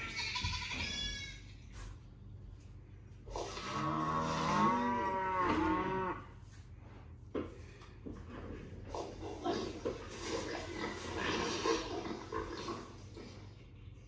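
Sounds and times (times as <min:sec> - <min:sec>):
cow mooing: 0:03.5 - 0:06.3.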